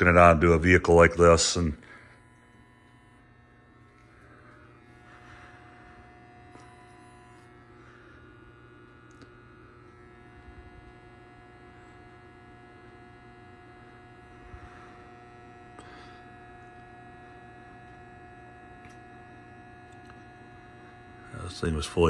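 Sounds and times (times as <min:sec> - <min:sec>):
battery charger humming: 0:00.0 - 0:22.0
thin steady tone: 0:00.0 - 0:22.0.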